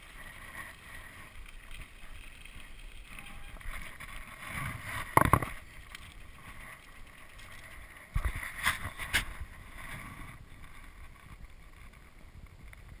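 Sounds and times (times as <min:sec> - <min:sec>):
knocks and scuffs of bike: 0:01.8 - 0:13.0
wind noise on microphone: 0:03.1 - 0:13.0.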